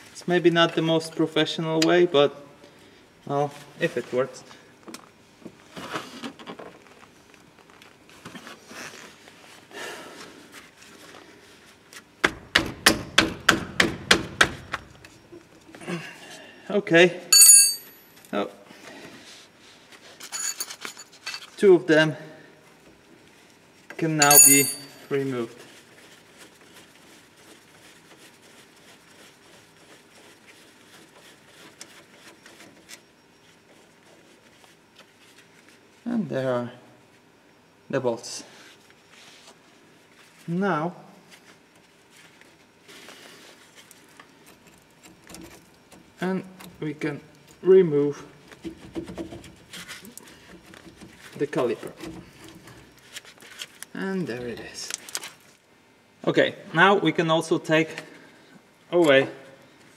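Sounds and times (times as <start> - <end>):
metal bolts clicking and rubbing: 24.2 - 25.0.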